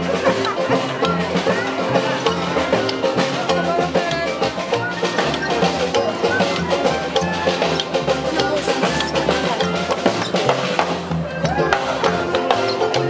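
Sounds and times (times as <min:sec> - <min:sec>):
banjo strumming: 0:00.0 - 0:13.0
double bass: 0:00.0 - 0:13.0
snare drum beat: 0:00.0 - 0:13.0.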